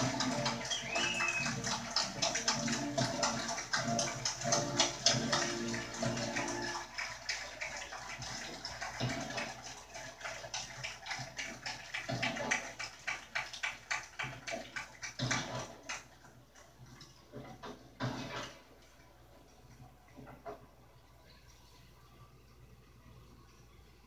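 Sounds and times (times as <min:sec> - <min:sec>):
crowd applauding through speaker: 0:00.0 - 0:16.1.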